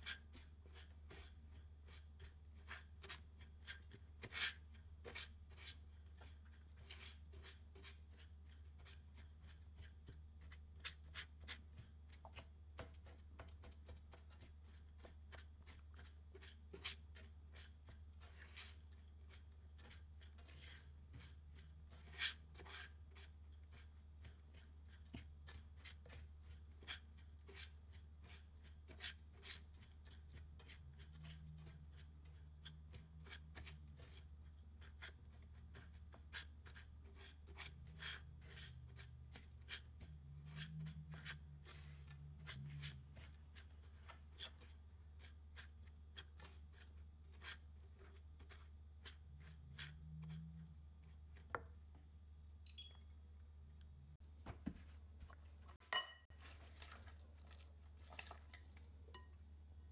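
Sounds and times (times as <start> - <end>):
spatula scraping crumbs in pan: 0.0 - 51.7, 55.2 - 59.4.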